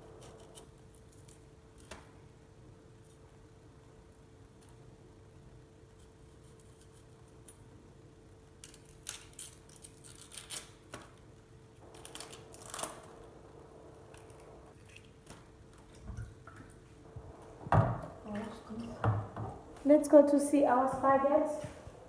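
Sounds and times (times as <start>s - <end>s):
faint steady hum: 0.0s - 22.0s
knife scraping onion skin: 8.5s - 11.1s.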